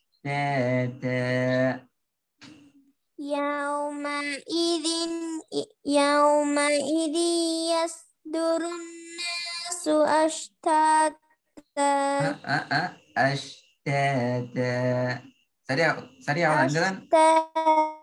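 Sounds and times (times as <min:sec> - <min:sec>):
person chanting melodically: 0:00.2 - 0:01.9.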